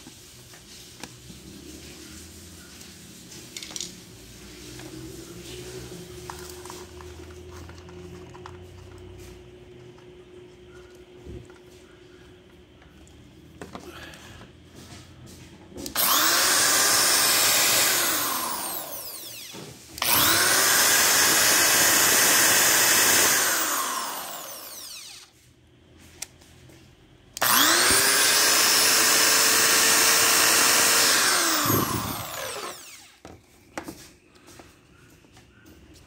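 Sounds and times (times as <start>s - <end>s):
electric drill whine: 15.9s - 25.4s, 27.4s - 33.4s.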